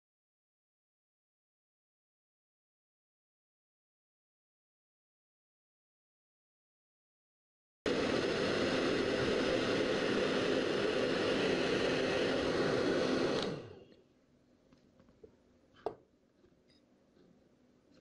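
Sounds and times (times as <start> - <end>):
hair dryer blowing air: 7.9 - 13.8.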